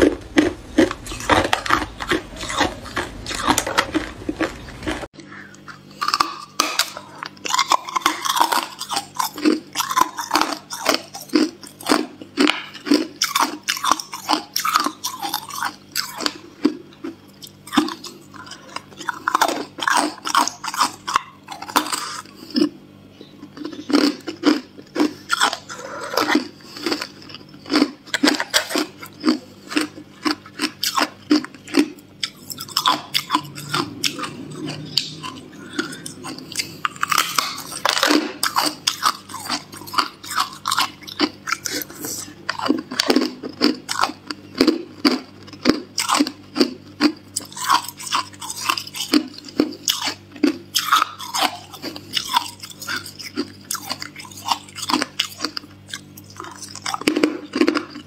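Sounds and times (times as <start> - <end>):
person crunching ice: 0.0 - 5.1, 23.6 - 58.0.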